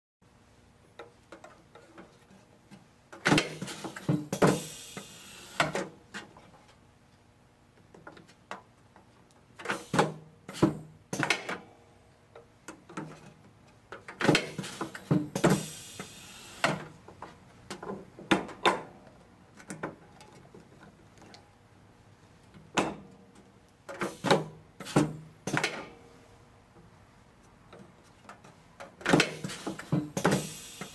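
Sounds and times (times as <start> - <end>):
pneumatic machine clunks: 3.2 - 6.0, 9.6 - 11.7, 14.1 - 17.0, 23.9 - 25.9, 28.9 - 30.9
short air hisses: 4.4 - 5.8, 9.7 - 10.1, 14.6 - 16.8, 29.4 - 30.9.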